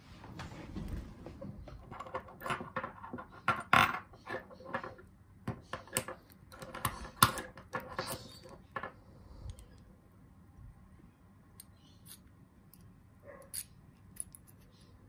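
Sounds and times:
metal padlock clicking and clinking: 0:11.6 - 0:14.6.

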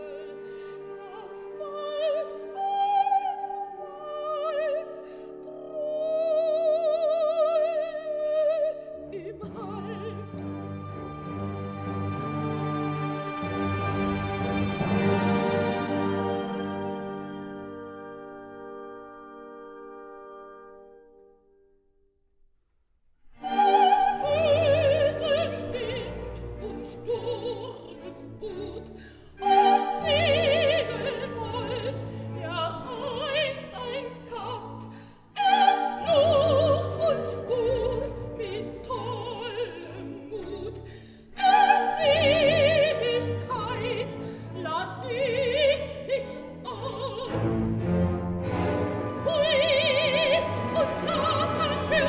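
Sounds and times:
operatic soprano singing: 0:00.0 - 0:11.0, 0:23.4 - 0:52.0
orchestra playing: 0:09.0 - 0:21.3, 0:23.4 - 0:34.6, 0:41.6 - 0:52.0.

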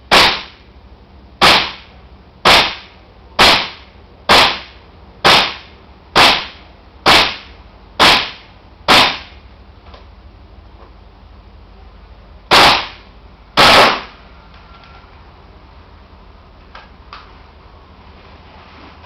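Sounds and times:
airsoft rifle shots: 0:00.1 - 0:00.7, 0:01.4 - 0:09.4, 0:12.5 - 0:14.2.

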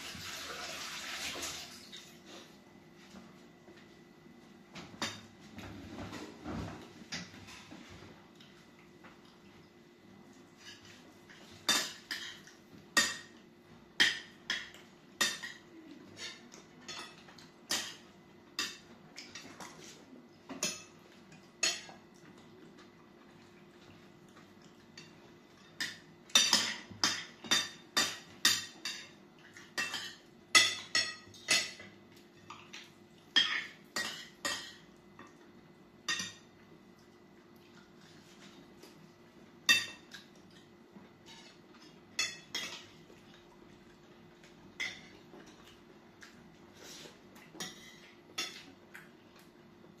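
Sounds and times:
faint steady hum: 0:00.0 - 0:50.0
cutlery clinking on glass bowls: 0:10.6 - 0:13.4, 0:14.0 - 0:22.0, 0:25.0 - 0:35.4, 0:36.1 - 0:36.5, 0:39.7 - 0:43.0, 0:44.7 - 0:45.7, 0:47.4 - 0:48.8.

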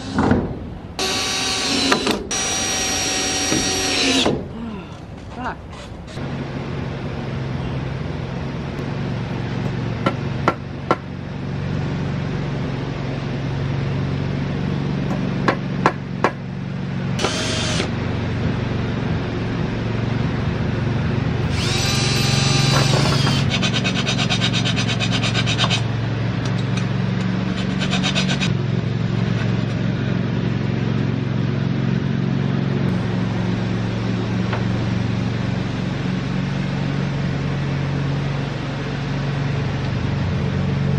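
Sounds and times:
steady low hum: 0:00.0 - 0:40.9
cordless drill boring into wood: 0:01.0 - 0:04.3, 0:17.2 - 0:17.9, 0:21.4 - 0:23.8.

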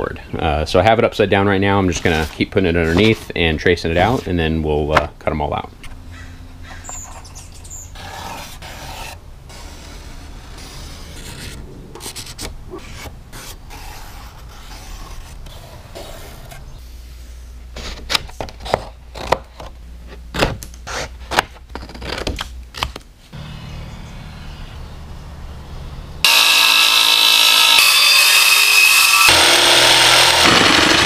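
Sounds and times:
paper rustling: 0:02.0 - 0:03.4.

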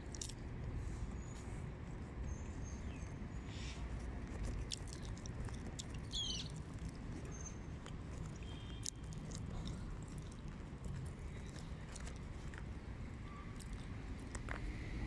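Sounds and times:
birds chirping: 0:06.0 - 0:06.6.

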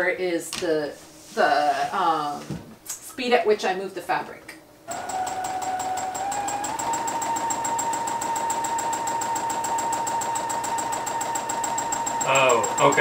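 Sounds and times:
sewing machine stitching: 0:04.9 - 0:13.0.

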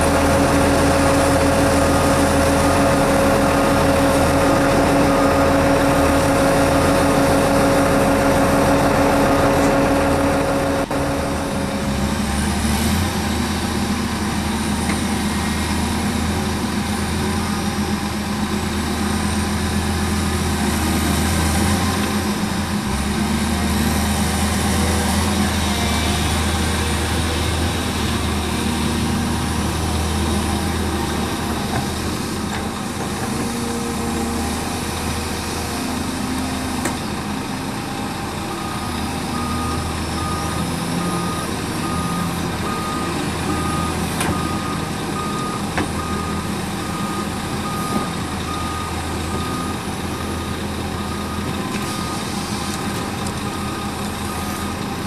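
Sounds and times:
truck reversing alarm beeping: 0:00.0 - 0:12.3, 0:37.8 - 0:55.0
heavy diesel engines running: 0:00.0 - 0:55.0.

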